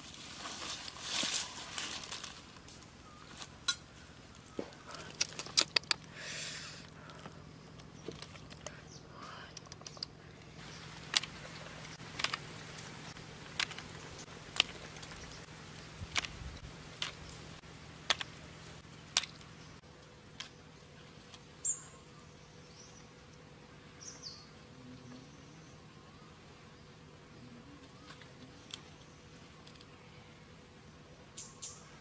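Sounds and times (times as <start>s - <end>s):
prawn shells cracking: 4.8s - 6.2s, 10.9s - 15.3s
bird chirping: 20.4s - 32.0s.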